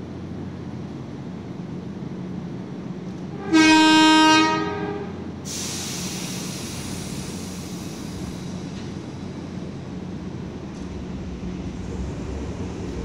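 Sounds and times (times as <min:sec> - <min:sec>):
electric train horn: 0:03.3 - 0:05.3.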